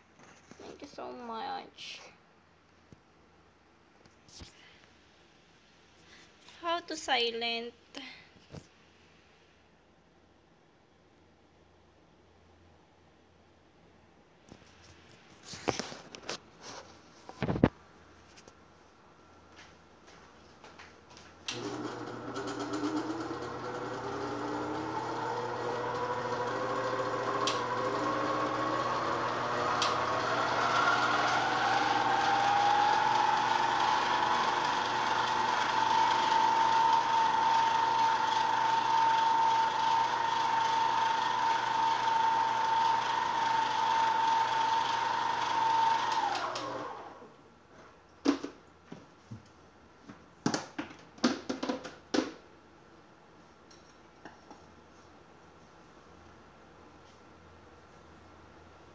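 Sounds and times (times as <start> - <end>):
kitchen appliance motor whine: 21.5 - 47.3.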